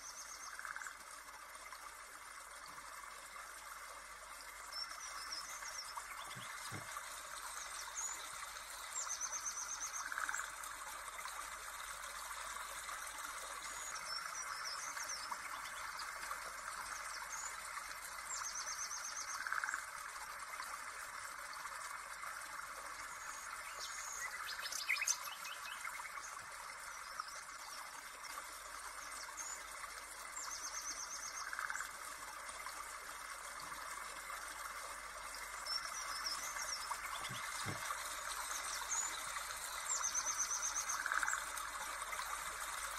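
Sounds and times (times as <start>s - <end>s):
running water rush: 0.0s - 42.9s
birds chirping and trilling: 4.8s - 6.9s, 35.7s - 41.4s.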